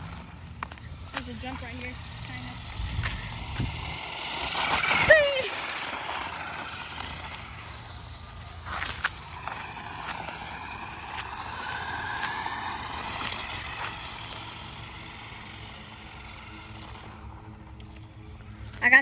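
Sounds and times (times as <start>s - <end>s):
rc car motor whining: 0.0s - 19.0s.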